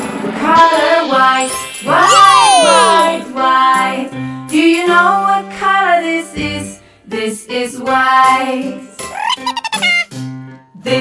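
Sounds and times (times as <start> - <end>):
children's song singing: 0.4 - 8.9.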